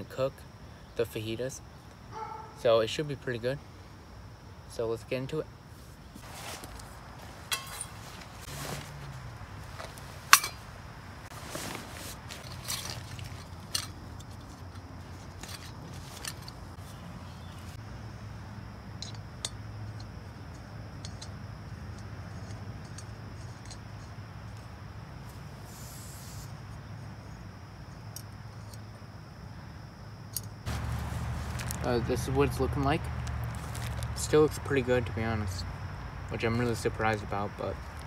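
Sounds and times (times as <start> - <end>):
stuff sack rustling: 6.2 - 17.8, 30.7 - 34.7.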